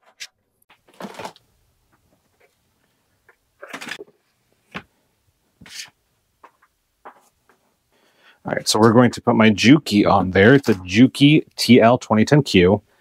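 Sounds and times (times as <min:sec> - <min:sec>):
objects rustling and knocking: 0:00.0 - 0:02.6, 0:03.2 - 0:07.8.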